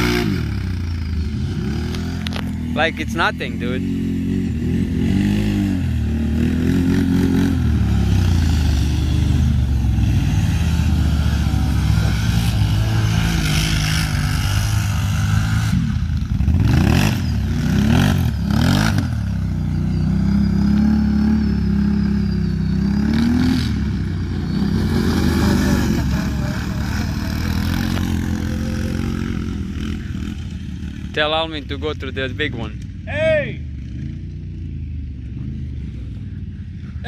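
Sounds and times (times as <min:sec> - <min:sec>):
quad engines revving: 0:00.0 - 0:33.0.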